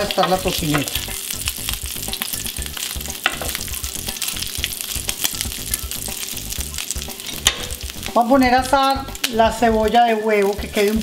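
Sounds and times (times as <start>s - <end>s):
bacon sizzling and popping: 0.0s - 11.0s.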